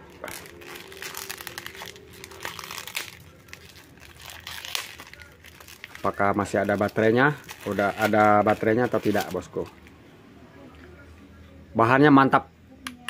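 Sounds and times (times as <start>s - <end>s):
plastic wrap crinkling: 0.0s - 9.9s.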